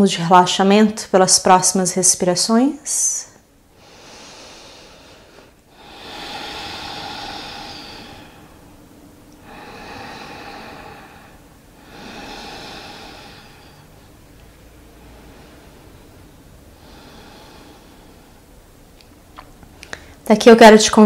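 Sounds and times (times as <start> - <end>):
woman breathing deeply: 3.5 - 18.8, 19.8 - 20.2.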